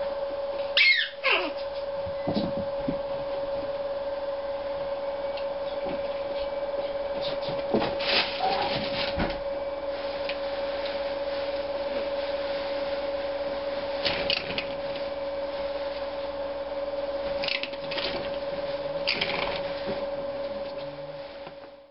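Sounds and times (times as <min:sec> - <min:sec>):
electrical hum: 0:00.0 - 0:21.9
animals rustling in bedding: 0:06.0 - 0:14.0.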